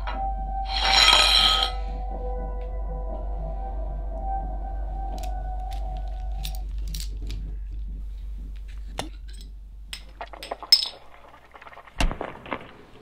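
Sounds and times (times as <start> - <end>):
low drone: 0.0 - 8.9
glass bottle clinking: 9.3 - 11.0.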